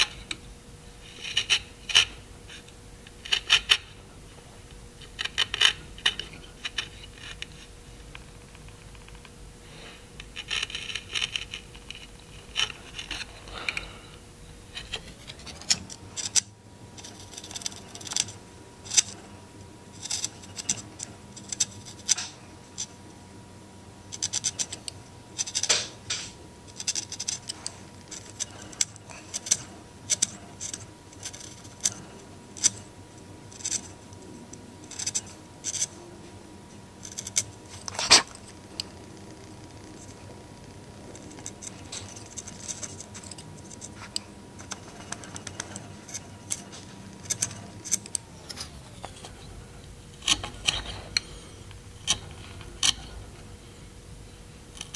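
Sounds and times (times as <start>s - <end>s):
chisel scraping wood: 1.0s - 4.0s, 8.6s - 14.1s, 14.7s - 19.4s, 20.0s - 22.4s, 24.2s - 32.8s, 34.9s - 35.9s, 37.0s - 38.9s, 41.1s - 53.3s.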